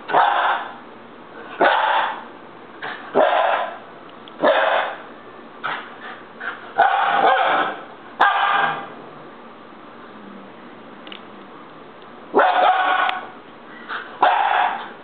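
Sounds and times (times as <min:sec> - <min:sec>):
puppy barking: 0:00.1 - 0:00.8, 0:01.6 - 0:02.3, 0:02.9 - 0:05.1, 0:06.8 - 0:08.9, 0:12.4 - 0:15.0.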